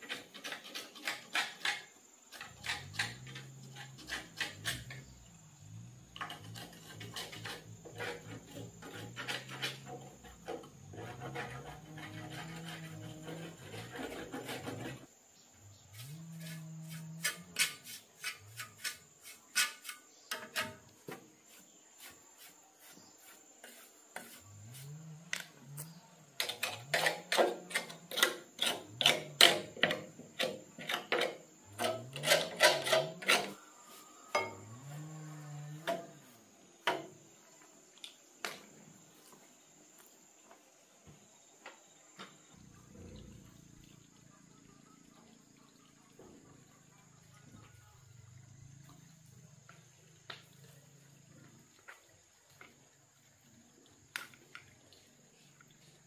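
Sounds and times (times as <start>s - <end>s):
rapid clicking and scraping on metal: 0.0s - 5.1s, 6.2s - 15.1s, 16.0s - 21.0s, 26.4s - 33.6s.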